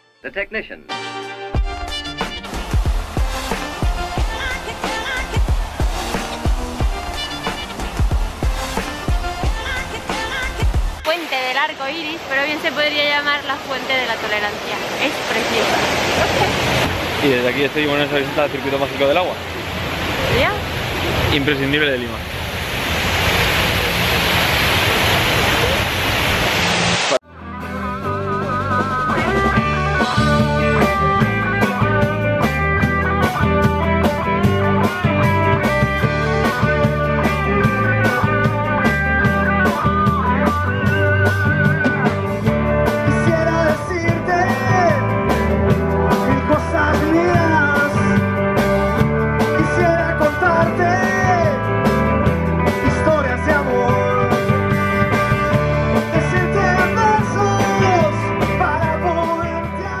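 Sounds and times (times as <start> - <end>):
rock band playing: 0.9 - 11.1, 27.2 - 60.0
person singing: 3.8 - 7.8, 8.8 - 11.0, 43.0 - 45.2, 46.1 - 48.2, 49.5 - 51.7, 56.1 - 60.0.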